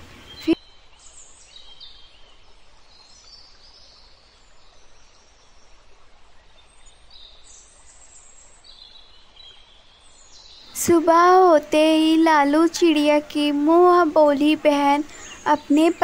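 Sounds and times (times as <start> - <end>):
low steady hiss: 0.0 - 16.0
birds chirping and whistling: 15.0 - 16.0.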